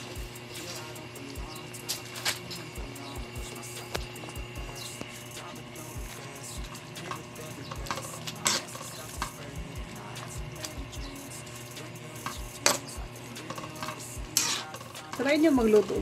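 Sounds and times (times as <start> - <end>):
spoon scraping pan: 14.4 - 14.9.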